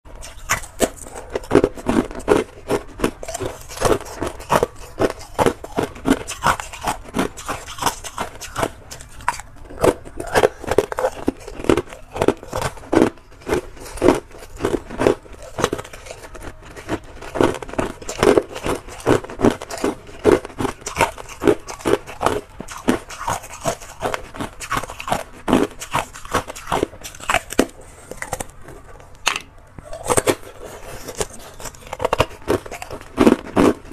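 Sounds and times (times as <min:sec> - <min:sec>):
ice being chewed: 0:00.1 - 0:33.9.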